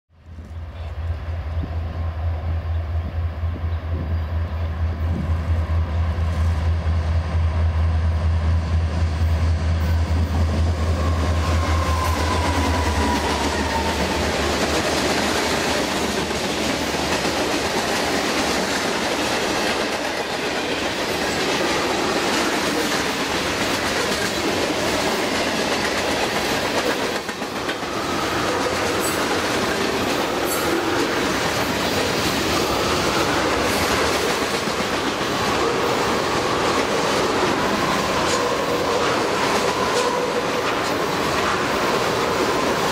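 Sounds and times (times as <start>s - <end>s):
train wheels clacking over rail joints: 11.0s - 42.9s.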